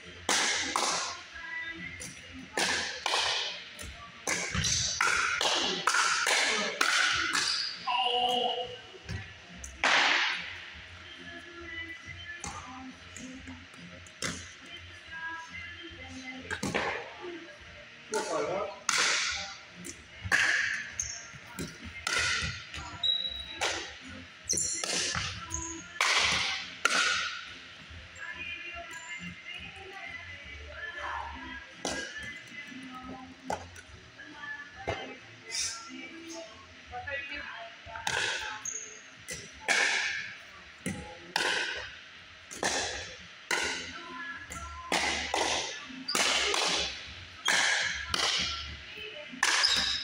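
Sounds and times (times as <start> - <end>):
paddles hitting plastic ball: 44.5 - 48.7.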